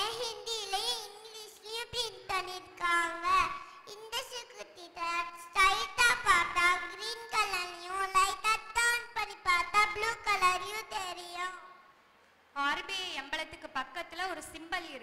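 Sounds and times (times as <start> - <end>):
girl singing into microphone: 0.0 - 11.6.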